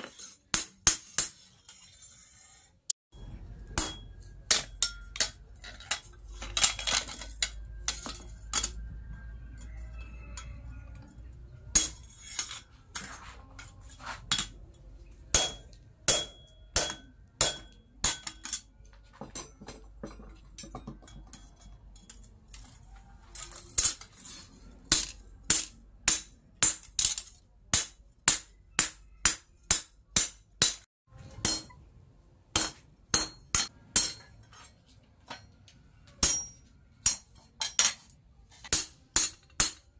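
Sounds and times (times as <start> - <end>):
hammer striking steel punch: 3.7 - 5.4, 15.3 - 18.4, 24.9 - 31.8, 32.5 - 34.3, 36.2 - 38.0, 38.7 - 39.8.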